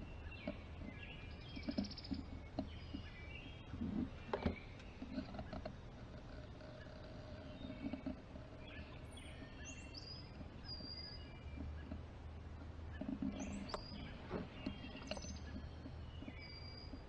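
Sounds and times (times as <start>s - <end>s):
low steady background hum: 0.0s - 17.0s
songbirds chirping and singing: 0.0s - 17.0s
camera knocks and rustles: 0.4s - 6.2s.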